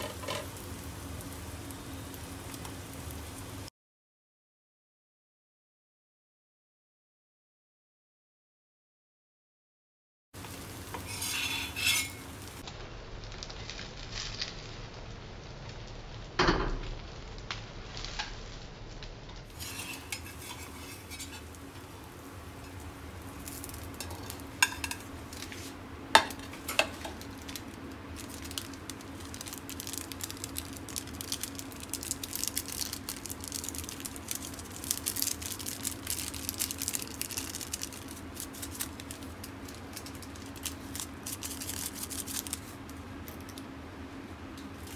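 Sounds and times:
omelet sizzling in a pan: 0.0 - 3.7, 10.4 - 44.9
metal spatula scraping pan: 10.9 - 12.3, 19.5 - 21.6
spatula clinking: 11.0 - 12.3, 19.5 - 21.6, 24.0 - 25.1.

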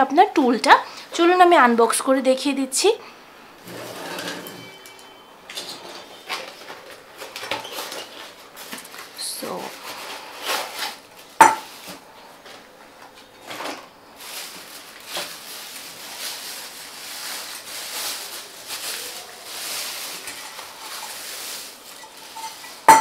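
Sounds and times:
plastic bag crinkling: 5.8 - 23.0.

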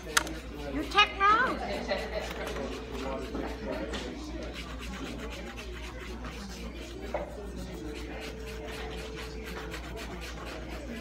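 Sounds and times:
faint rubbing and scraping: 0.0 - 11.0.

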